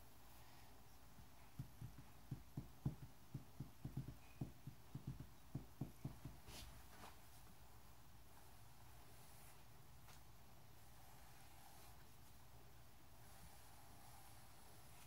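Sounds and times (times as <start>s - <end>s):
soft dull thumps: 1.2s - 6.5s.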